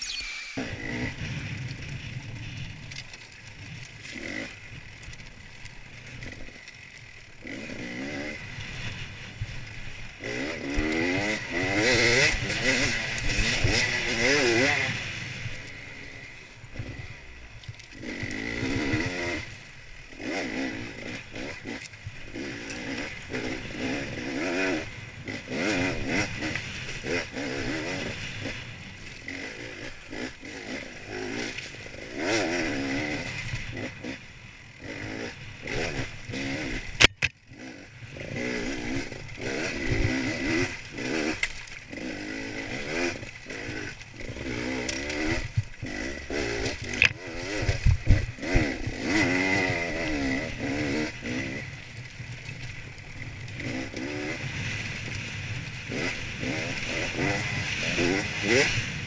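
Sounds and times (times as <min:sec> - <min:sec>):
motorcycle engine revving: 0:00.0 - 0:59.0
sharp crack: 0:37.0 - 0:37.4.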